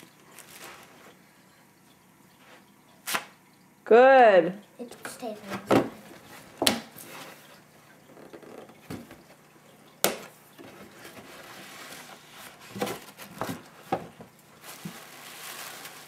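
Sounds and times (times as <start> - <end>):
tissue paper rustling: 0.3 - 1.1, 11.0 - 13.9, 14.5 - 16.0.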